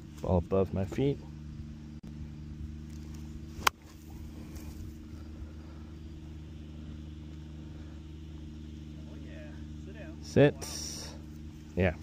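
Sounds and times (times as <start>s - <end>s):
steady low hum: 0.0s - 12.0s
golf club striking ball: 2.9s - 4.2s.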